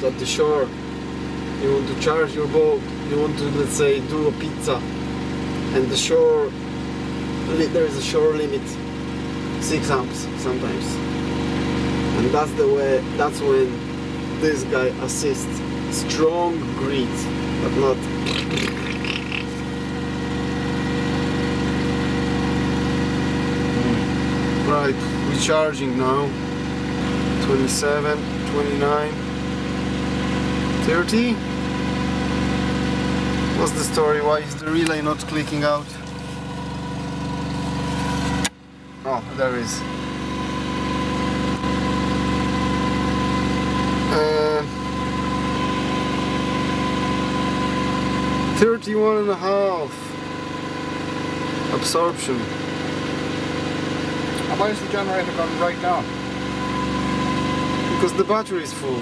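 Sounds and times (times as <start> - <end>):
generator engine running: 0.0 - 59.0.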